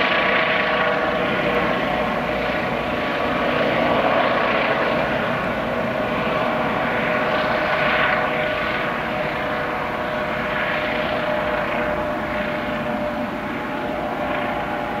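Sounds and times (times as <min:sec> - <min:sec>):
constant whine: 0:00.0 - 0:15.0
helicopter rotor and engine: 0:00.0 - 0:15.0.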